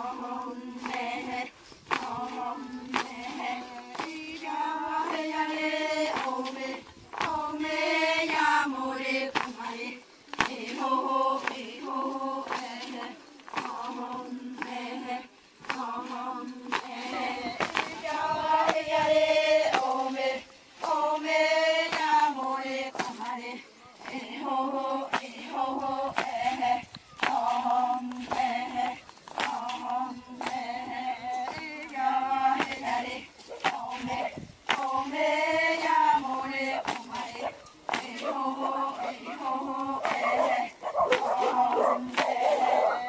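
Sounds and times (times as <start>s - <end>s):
women chanting in unison: 0.0s - 43.0s.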